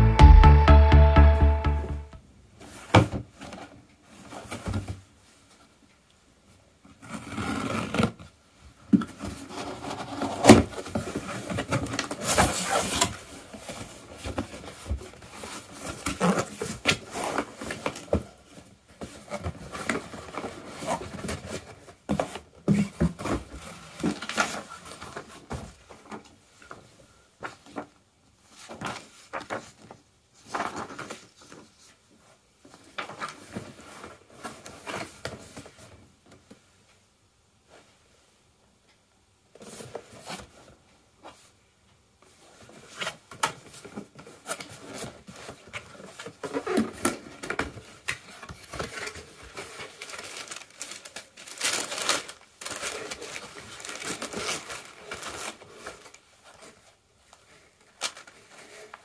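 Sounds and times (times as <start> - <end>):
paper sheet rustling: 42.4 - 59.0.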